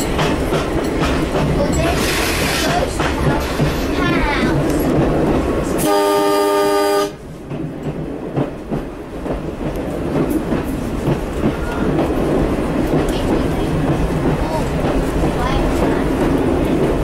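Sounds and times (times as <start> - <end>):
railcar rumbling along track: 0.0 - 17.0
railcar horn chord: 5.8 - 7.2.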